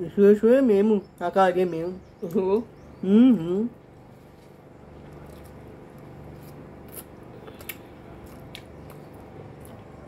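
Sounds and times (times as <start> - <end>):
chewing: 4.0 - 10.0.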